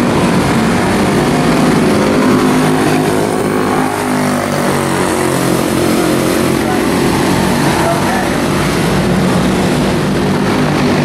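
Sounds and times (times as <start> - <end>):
race car engines passing: 0.0 - 11.0.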